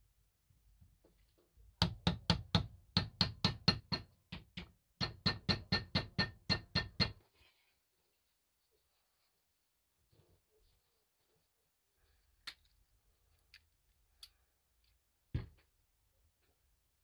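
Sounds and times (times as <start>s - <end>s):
hammer tapping: 1.8s - 7.2s.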